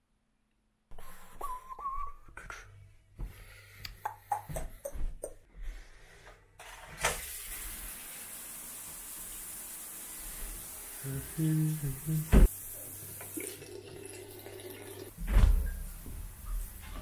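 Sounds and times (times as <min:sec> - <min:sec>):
shower water spraying: 0:07.0 - 0:13.8, 0:15.6 - 0:17.0.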